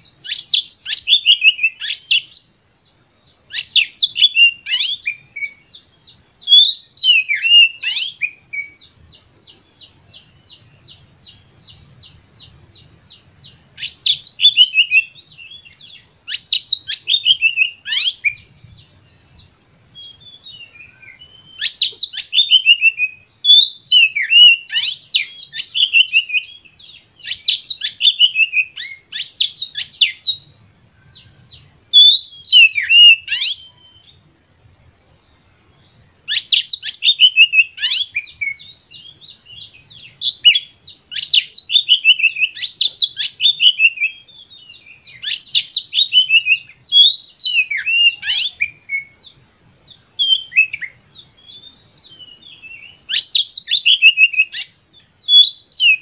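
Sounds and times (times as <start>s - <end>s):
bird singing: 0.0s - 56.0s.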